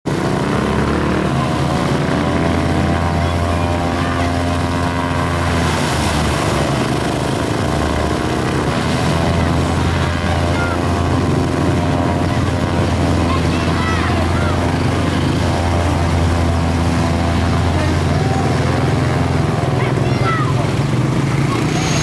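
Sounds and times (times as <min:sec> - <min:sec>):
propeller aircraft engines droning: 0:00.0 - 0:22.0.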